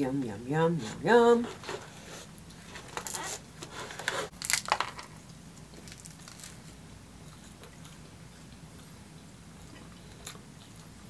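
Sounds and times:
crunching bites of pizza: 2.4s - 9.0s
quiet chewing: 5.2s - 11.0s.

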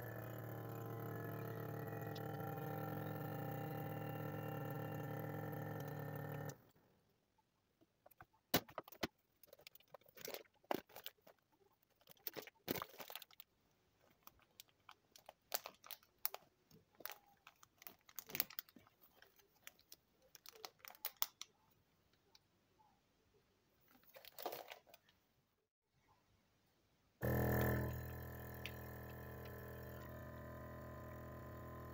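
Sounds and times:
vacuum sealer pump running: 0.0s - 6.8s, 27.2s - 31.9s
plastic bag crinkling: 8.7s - 21.5s, 23.9s - 25.1s.

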